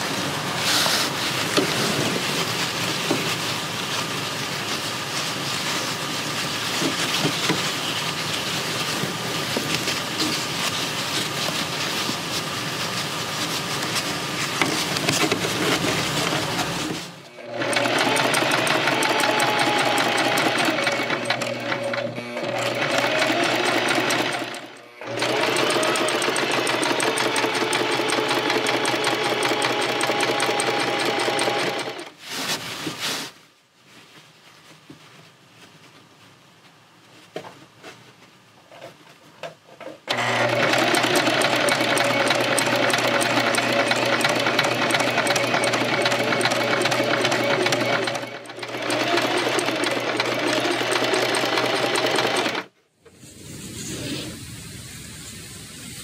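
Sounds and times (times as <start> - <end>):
sewing machine stitching: 14.6 - 32.2, 40.1 - 52.7.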